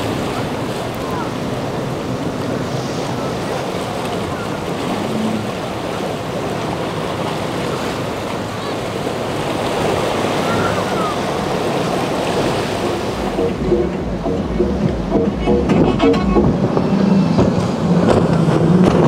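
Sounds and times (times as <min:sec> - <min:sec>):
boat engines running: 0:00.0 - 0:19.0
surf and rushing water: 0:00.0 - 0:19.0
wind on microphone: 0:09.2 - 0:19.0.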